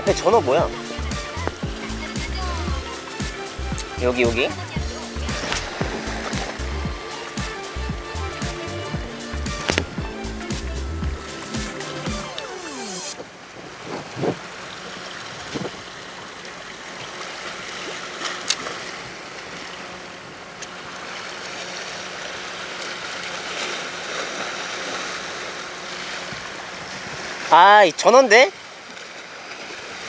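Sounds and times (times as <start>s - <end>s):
steady low hum: 0.0s - 12.5s
seawater lapping: 0.0s - 30.0s
wind on microphone: 3.6s - 7.0s, 13.6s - 14.5s.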